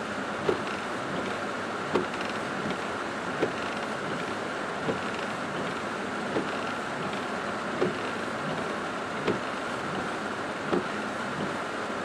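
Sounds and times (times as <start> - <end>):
rain and vehicle noise in car: 0.0 - 12.0
windshield wipers squeaky thump: 0.4 - 1.3, 1.9 - 2.8, 4.8 - 5.7, 6.3 - 7.2, 7.8 - 10.1, 10.7 - 11.6.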